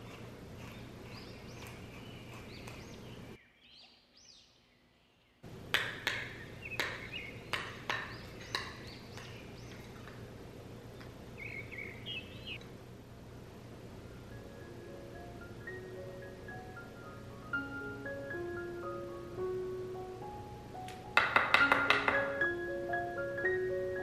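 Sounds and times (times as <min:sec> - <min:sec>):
birds chirping: 0:00.0 - 0:12.7, 0:13.6 - 0:19.4.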